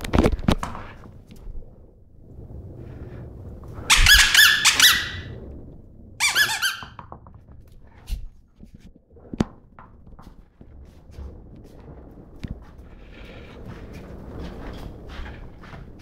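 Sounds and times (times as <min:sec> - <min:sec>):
squeaky toy ball squeaking: 0:03.9 - 0:05.3, 0:06.2 - 0:07.0.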